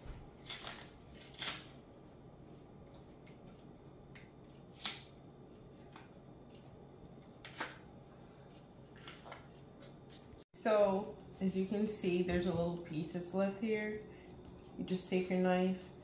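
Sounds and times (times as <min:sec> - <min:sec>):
plantain skin tearing: 0:00.4 - 0:01.8, 0:04.7 - 0:05.1.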